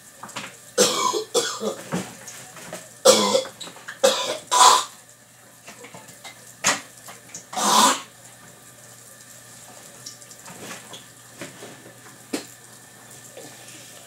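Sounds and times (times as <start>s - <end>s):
person coughing: 0.8s - 1.8s, 3.1s - 4.9s, 7.6s - 8.0s.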